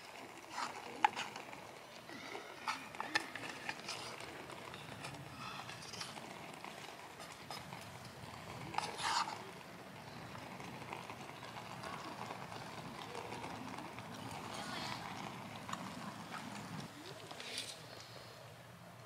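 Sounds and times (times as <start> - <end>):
chopsticks stirring rice in tin: 0.1 - 1.8, 2.6 - 15.1
scrape in tin: 8.8 - 9.4.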